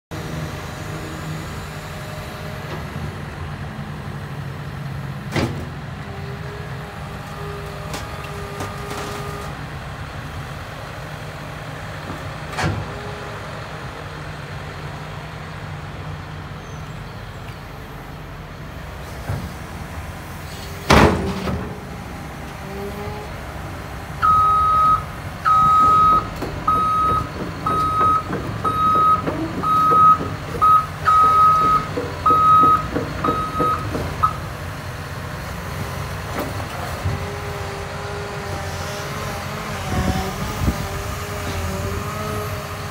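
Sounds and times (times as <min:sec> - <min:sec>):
excavator diesel engine running: 0:00.1 - 0:42.9
travel alarm beeping: 0:24.2 - 0:34.4.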